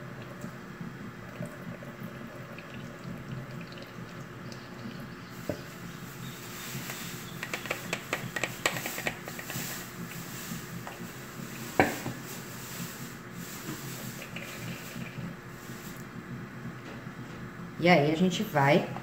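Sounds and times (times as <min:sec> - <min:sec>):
bowl scraping wet wheat in strainer: 0:05.4 - 0:16.0
hand rubbing wet wheat: 0:08.5 - 0:16.0.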